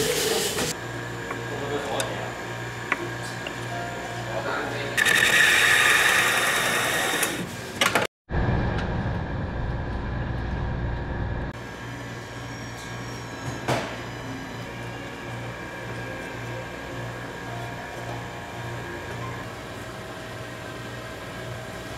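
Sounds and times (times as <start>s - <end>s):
steady background hum: 0.7s - 21.9s
electric shredder whirring: 5.0s - 7.5s
low mechanical rumble: 8.3s - 12.6s.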